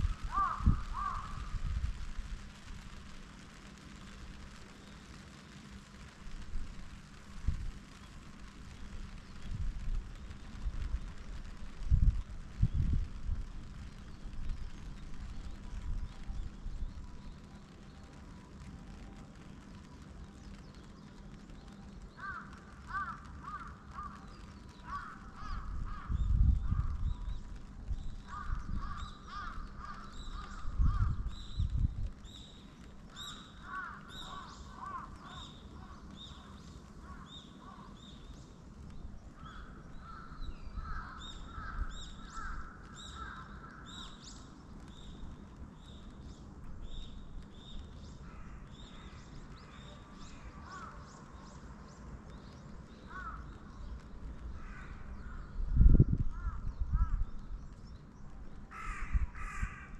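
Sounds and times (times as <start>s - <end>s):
crows cawing: 0.2s - 1.6s, 22.2s - 27.0s, 28.3s - 31.3s, 33.3s - 38.0s, 39.4s - 44.1s, 48.2s - 49.2s, 50.3s - 51.1s, 53.0s - 53.8s, 54.5s - 55.5s, 56.3s - 57.3s, 58.7s - 59.9s
small birds chirping: 7.8s - 59.9s
low rumble: 25.5s - 32.4s.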